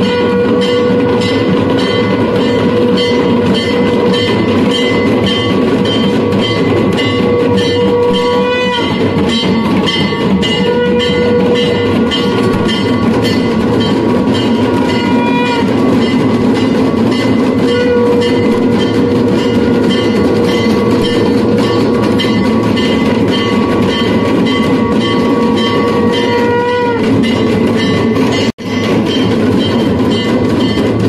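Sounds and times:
long steady horn note: 0.0 - 1.5, 7.2 - 9.2, 17.7 - 18.8, 25.4 - 27.0
rapid drum and bell clatter: 0.0 - 31.0.

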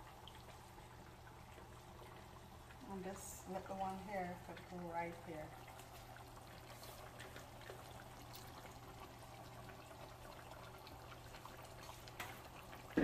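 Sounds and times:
curry simmering in a pan: 0.0 - 13.0
bubbling pops: 5.6 - 13.0.

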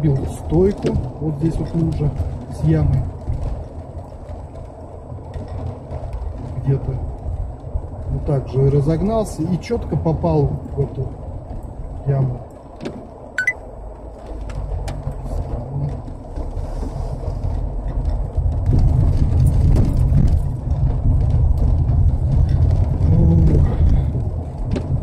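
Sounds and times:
engine and tyre rumble: 0.0 - 25.0
light knocks and clicks: 12.5 - 13.1, 24.6 - 25.0
tyres hissing on wet road: 16.4 - 17.5.

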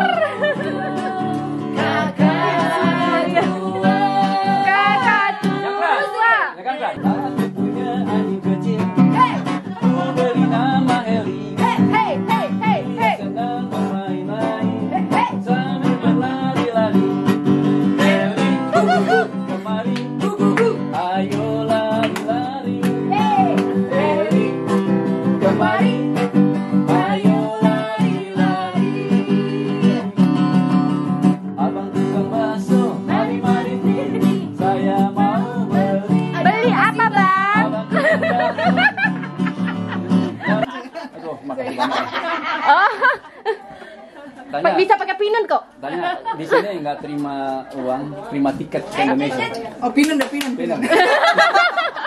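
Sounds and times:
acoustic guitar strumming: 0.0 - 6.3, 7.0 - 40.8
voices singing: 0.0 - 41.1.

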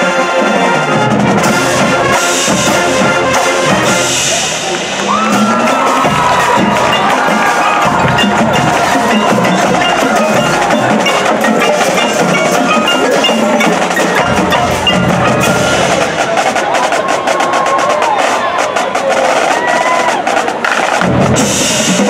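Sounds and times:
marching band music: 0.0 - 22.0
mallet percussion notes: 0.1 - 17.2
drum strikes: 1.0 - 22.0.

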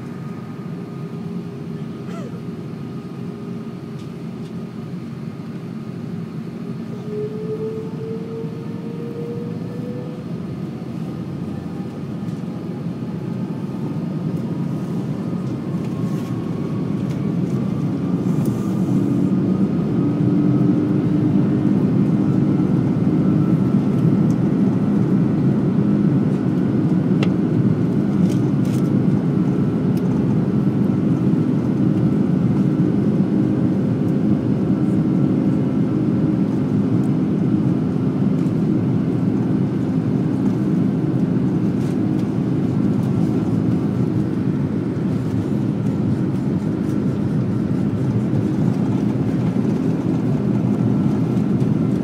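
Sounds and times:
jet engines spooling up: 6.0 - 27.6.

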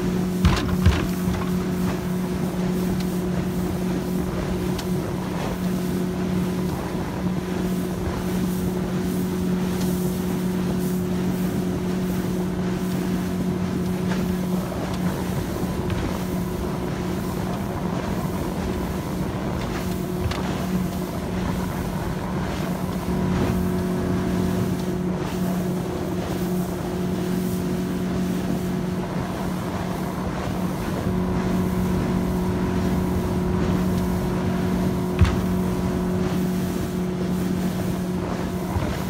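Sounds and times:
motorboat engine droning: 0.0 - 39.0
wind on microphone: 13.5 - 39.0.

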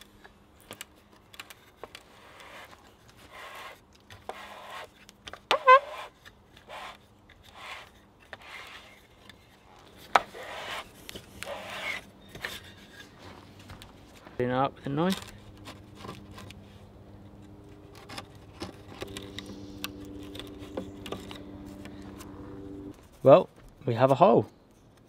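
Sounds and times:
steel auger scraping wood: 2.0 - 13.2, 17.8 - 22.9.

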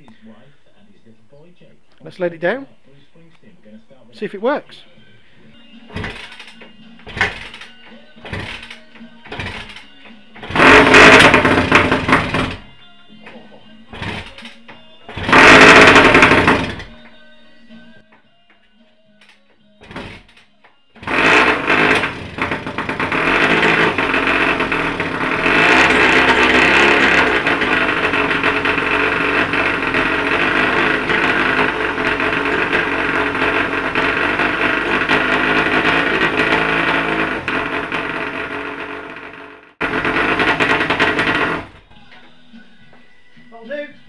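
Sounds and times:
two-stroke engine running and revving: 5.9 - 9.8, 10.4 - 12.7, 13.9 - 17.0, 19.8 - 20.3, 21.0 - 41.8.

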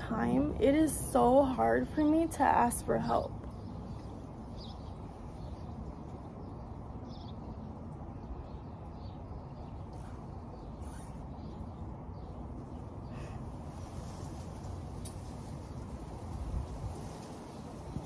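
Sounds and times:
low outdoor rumble: 0.0 - 18.0
faint bird chirps: 8.2 - 13.5.

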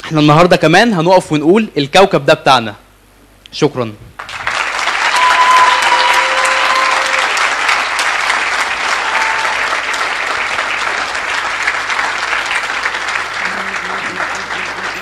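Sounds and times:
audience applauding: 4.2 - 15.0
held call above clapping: 4.2 - 15.0.

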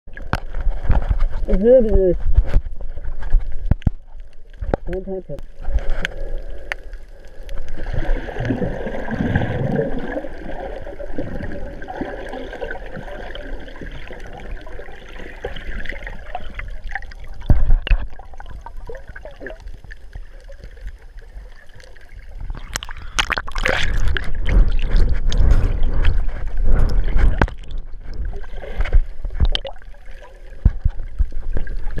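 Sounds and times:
muffled underwater sloshing: 0.1 - 32.0
splashing and knocking: 15.4 - 19.6, 22.4 - 32.0.

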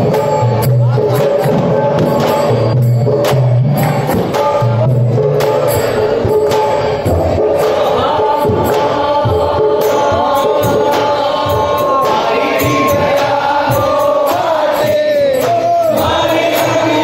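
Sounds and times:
group singing along: 7.0 - 17.0.

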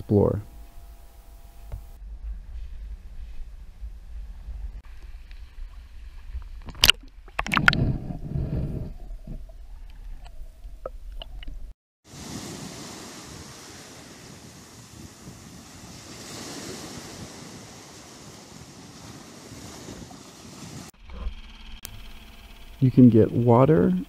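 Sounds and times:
wind rumbling on microphone: 0.0 - 21.4
splash and gurgling water: 5.1 - 8.1
small waves washing on sand: 12.1 - 21.0.

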